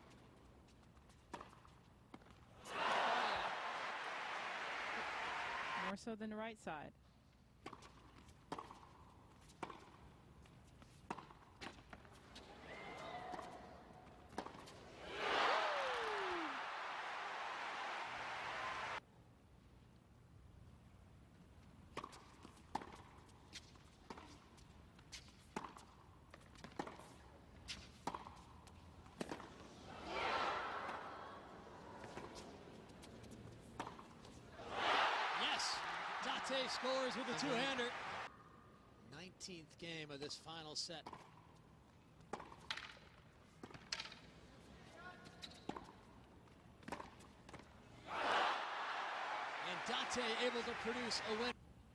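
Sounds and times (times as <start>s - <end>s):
tennis ball hits and bounces: 1.2s - 2.5s, 7.6s - 10.1s, 10.8s - 14.9s, 21.9s - 29.8s, 32.0s - 33.0s, 33.6s - 34.4s, 41.0s - 41.4s, 42.2s - 44.3s, 45.3s - 47.8s
crowd noise: 2.6s - 5.9s, 14.9s - 19.0s, 34.6s - 38.3s, 48.1s - 51.5s.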